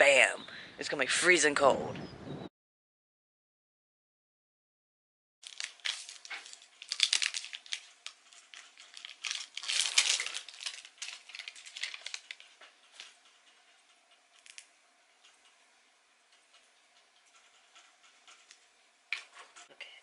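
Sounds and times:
plastic wrapper crackling: 5.4 - 13.2, 14.3 - 14.7.

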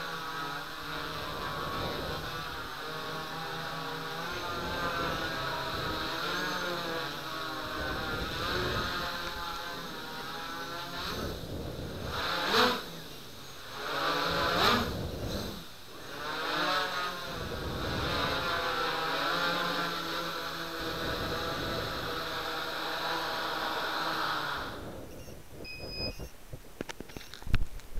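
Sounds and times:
quadcopter motors humming: 0.0 - 27.4
short high beep: 25.1 - 26.4.

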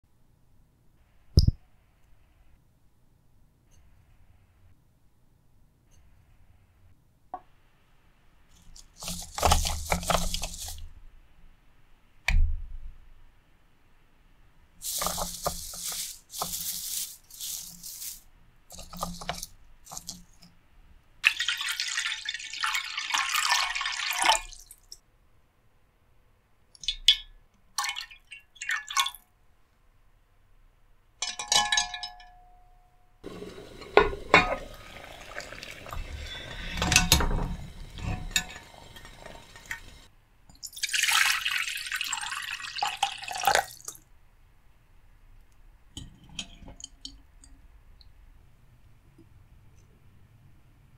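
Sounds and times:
rustling: 8.5 - 11.0, 14.8 - 20.4
water poured into ceramic pan: 21.2 - 24.9, 33.3 - 44.0.

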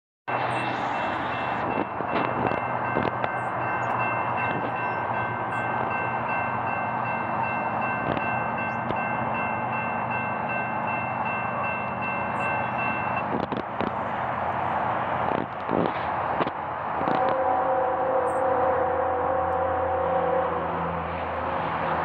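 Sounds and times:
distant locomotive horn chord: 17.0 - 21.6.

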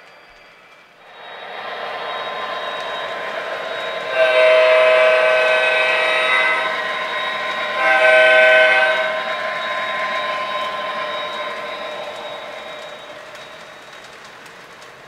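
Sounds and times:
model train horn blasts: 2.0 - 13.2.

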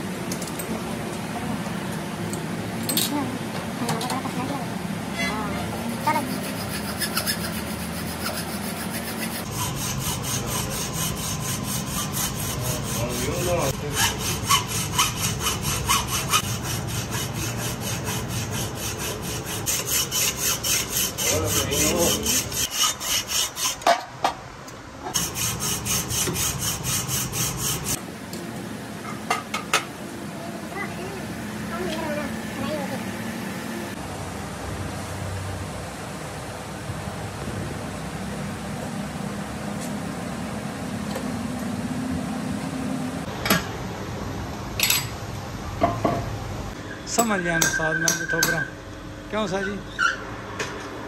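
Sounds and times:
hacksaw sawing metal: 5.2 - 24.0, 25.1 - 28.0.

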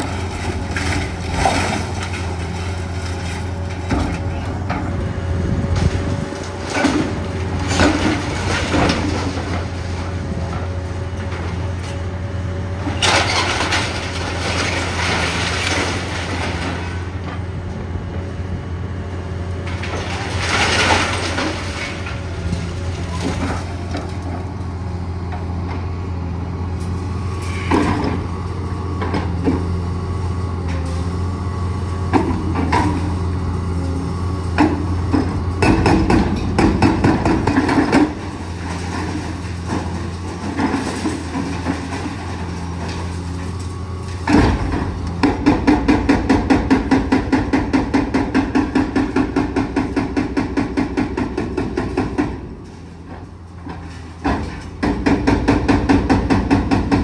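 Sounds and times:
clanks of concrete and debris: 0.0 - 5.0, 5.7 - 12.1, 12.8 - 17.5, 19.6 - 24.5, 26.8 - 28.3, 32.1 - 33.3, 34.4 - 57.0
excavator diesel engine running: 0.0 - 57.0
hydraulic breaker hammering: 34.6 - 38.3, 44.2 - 52.5, 54.2 - 57.0.

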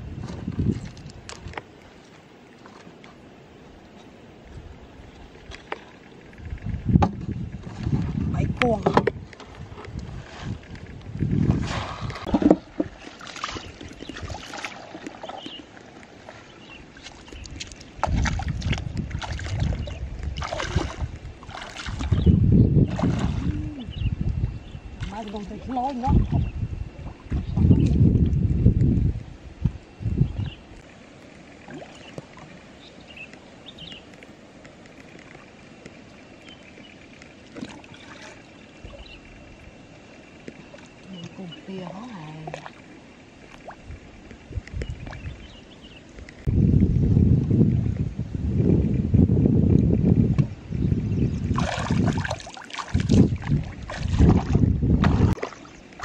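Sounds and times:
shallow water sloshing: 0.0 - 24.0, 24.7 - 28.2, 30.8 - 46.5, 51.2 - 56.0
water splashing around legs: 9.9 - 23.8, 51.4 - 56.0.

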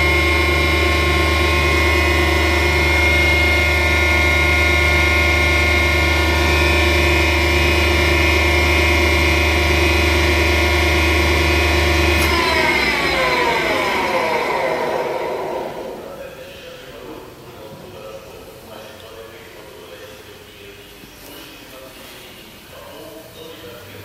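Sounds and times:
motors spinning down: 0.0 - 16.2
tool grinder hum and whine: 0.0 - 16.2.

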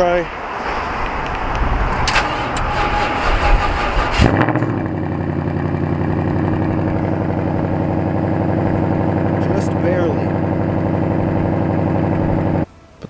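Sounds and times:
wind noise: 0.0 - 4.9
car engine starting and idling: 0.5 - 12.7.

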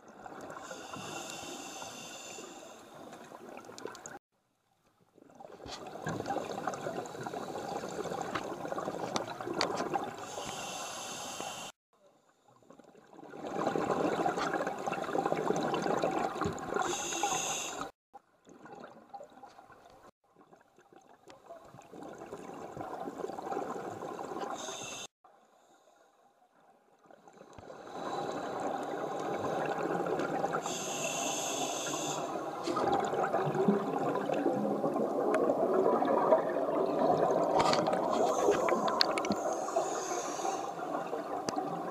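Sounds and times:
regulator hiss: 0.7 - 2.8, 10.3 - 11.8, 16.8 - 17.9, 30.6 - 32.3.

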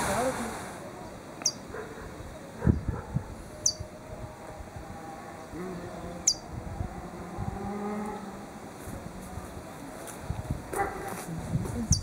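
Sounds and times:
bird chirps: 1.0 - 1.7, 3.6 - 3.9, 6.2 - 6.5.

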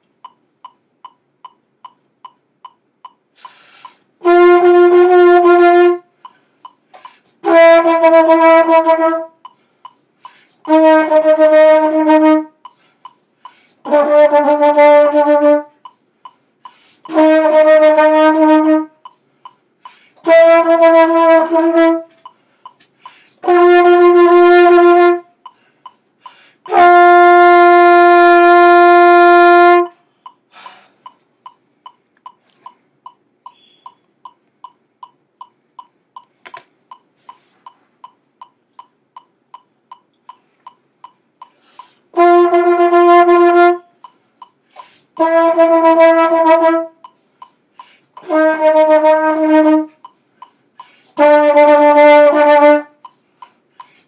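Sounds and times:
steady ticking: 0.0 - 28.0, 28.6 - 54.0
trumpet playing held notes: 4.2 - 6.2, 7.4 - 9.4, 10.7 - 12.6, 13.8 - 15.8, 17.1 - 19.0, 20.2 - 22.2, 23.4 - 25.4, 26.7 - 30.0, 42.1 - 44.0, 45.2 - 47.0, 48.2 - 50.0, 51.1 - 53.0.

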